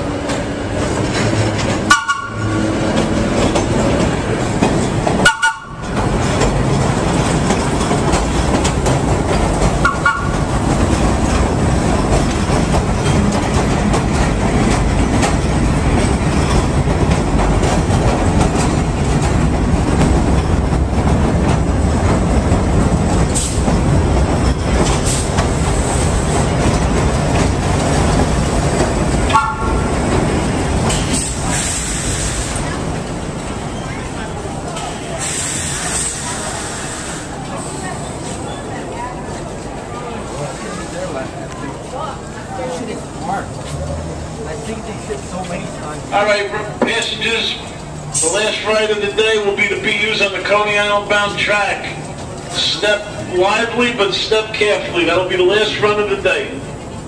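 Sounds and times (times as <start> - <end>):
subway train running: 0.0 - 57.0
train horn toots: 1.9 - 2.8, 5.2 - 5.8, 9.8 - 10.4, 29.3 - 29.9.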